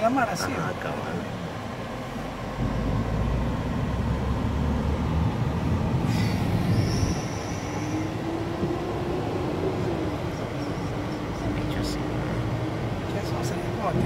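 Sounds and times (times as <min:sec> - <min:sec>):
car road and engine rumble: 0:00.0 - 0:14.0
brief high-pitched squeal: 0:06.1 - 0:08.1.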